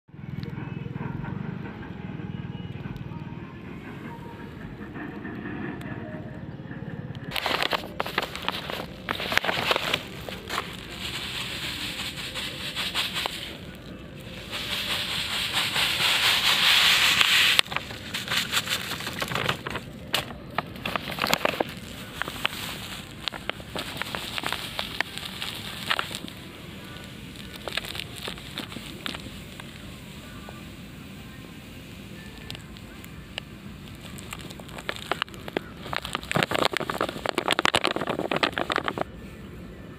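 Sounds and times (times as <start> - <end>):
granules pouring hiss: 7.3 - 39.2
plastic packets crackling: 7.3 - 39.2.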